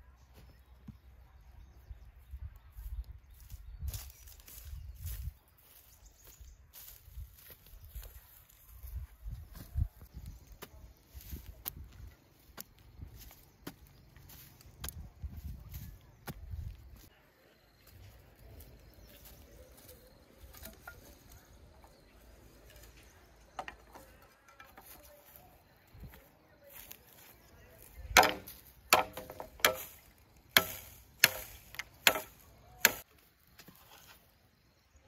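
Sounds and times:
chopping strikes on wood: 28.1 - 33.0.

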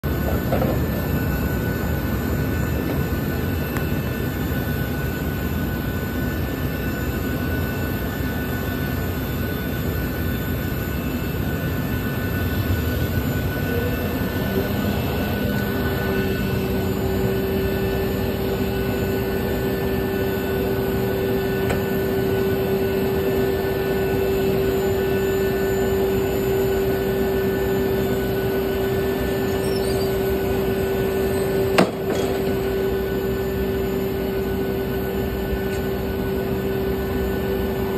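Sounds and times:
sharp clunk: 31.7 - 32.5.

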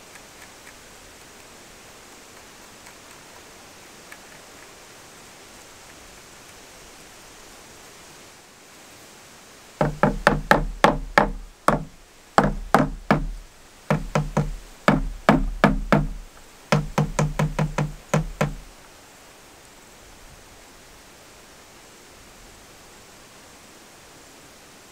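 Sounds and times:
rubber mallet knocking on wood: 9.8 - 18.7.

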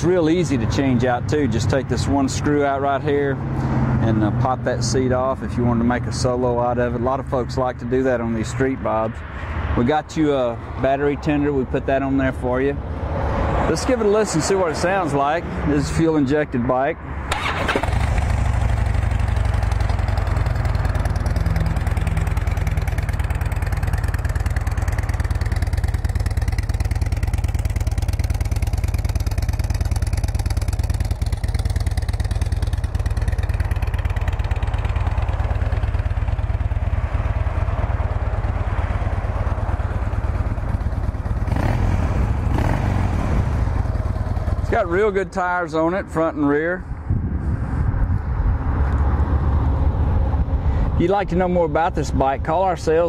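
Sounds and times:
motorcycle engine idling: 17.3 - 46.2.

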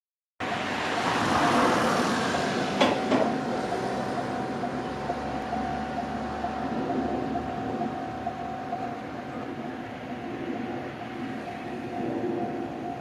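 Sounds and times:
level crossing alarm ringing: 0.4 - 13.0
steady rushing noise: 0.4 - 13.0
sharp knocks: 2.8 - 3.4.

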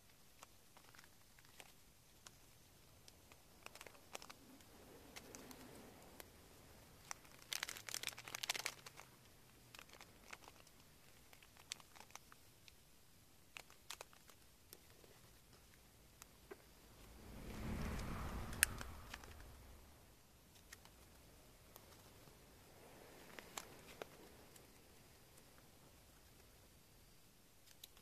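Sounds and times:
light ticks of paper and plastic: 0.0 - 16.6, 20.5 - 22.4, 23.0 - 26.6, 27.6 - 28.0
plastic packaging crinkling: 0.1 - 2.4, 3.4 - 4.5, 7.0 - 12.7, 13.5 - 15.5.

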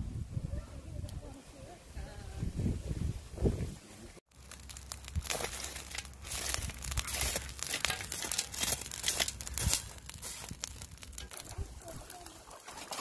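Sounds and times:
foil parcel crackling on charcoal: 4.3 - 13.0.

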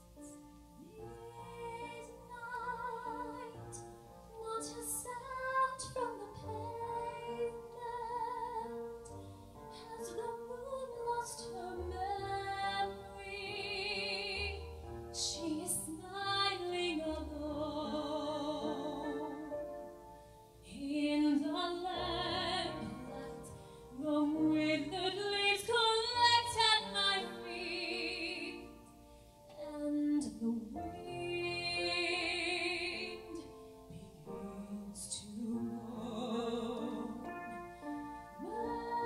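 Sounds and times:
soft keyboard accompaniment: 0.0 - 39.0
woman singing a slow ballad: 0.8 - 8.8, 15.2 - 19.5, 20.6 - 28.7, 29.5 - 37.6.

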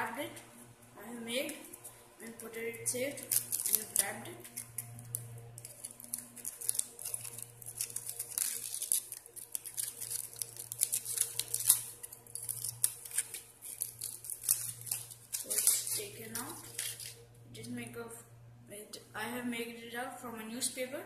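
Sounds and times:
aluminium foil crinkling: 1.5 - 17.3.

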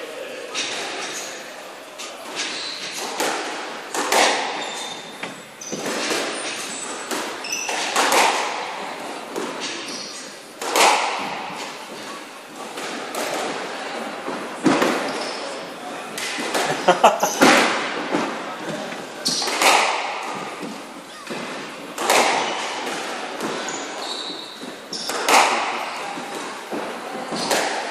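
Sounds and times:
squash ball impacts: 2.9 - 15.3, 16.2 - 27.9.

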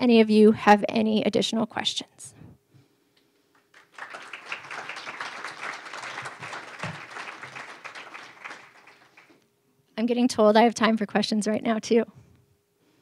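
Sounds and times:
audience applauding: 3.6 - 9.4.

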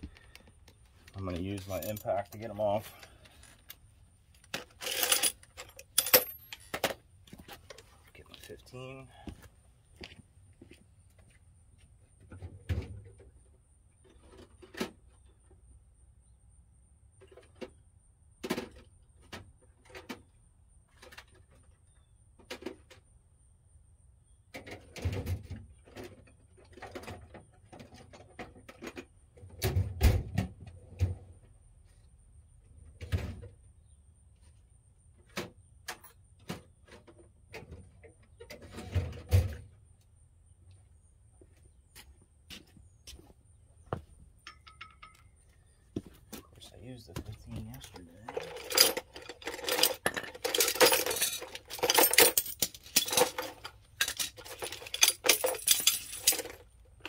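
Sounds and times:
hand tools clanking: 1.3 - 3.2, 4.5 - 6.9, 44.4 - 45.3, 47.2 - 56.6.

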